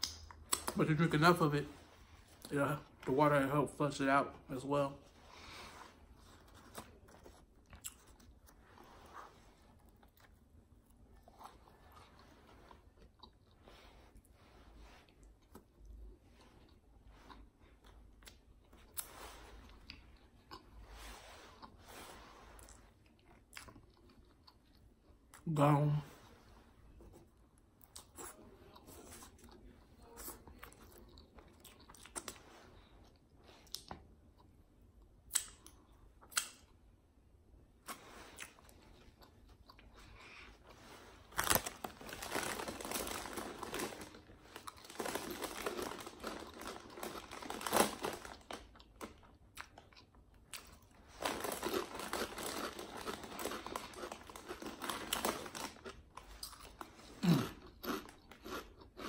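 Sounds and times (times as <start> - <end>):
chewing food: 6.4 - 14.3, 22.6 - 25.4, 37.9 - 59.0
paper wrapper rustling: 41.2 - 48.7, 51.1 - 55.8
low throat sound: 57.2 - 57.6.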